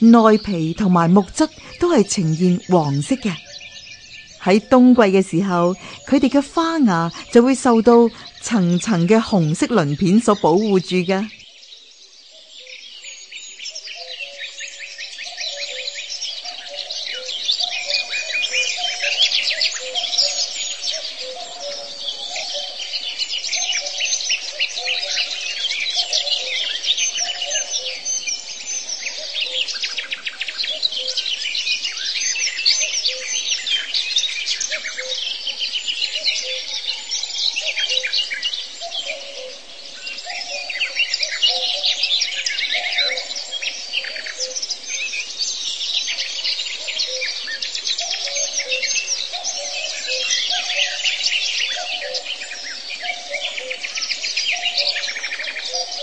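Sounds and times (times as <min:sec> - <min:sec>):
low repeating bird notes: 0:00.0 - 0:12.2
songbirds chirping and trilling: 0:00.0 - 0:56.0.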